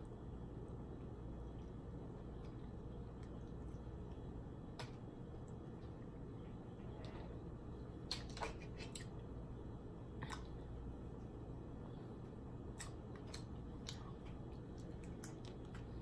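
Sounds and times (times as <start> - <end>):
steady low hum: 0.0 - 16.0
crab shell cracking and chewing: 12.7 - 16.0.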